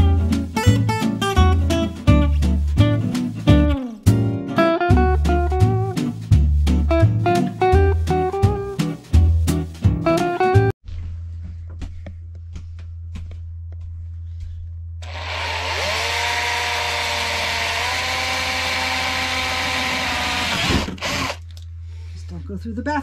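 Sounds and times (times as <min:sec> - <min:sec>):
cordless drill boring through wood: 0:15.0 - 0:21.4.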